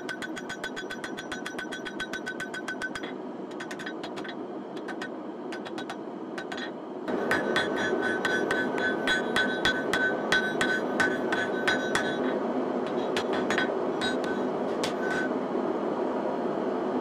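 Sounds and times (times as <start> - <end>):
hammer ringing on anvil: 0.0 - 3.1, 7.1 - 15.3
steady rushing noise: 4.9 - 17.0.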